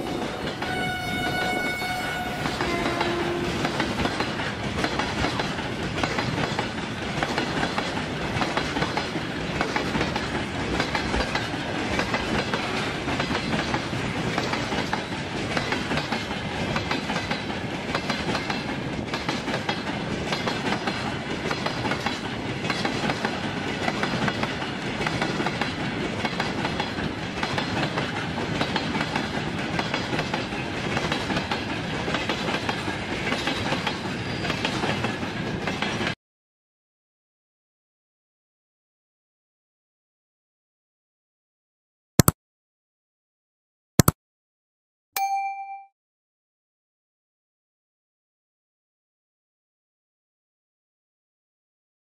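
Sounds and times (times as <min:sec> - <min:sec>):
freight train rumbling past: 0:00.0 - 0:36.2
wheels clacking over rail joints: 0:02.2 - 0:36.2.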